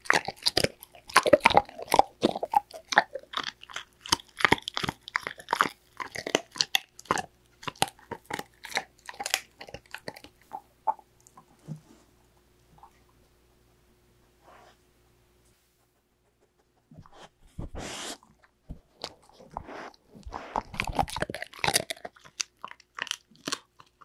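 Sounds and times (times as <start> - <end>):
dog crunching a treat: 0.0 - 11.4, 18.2 - 24.0.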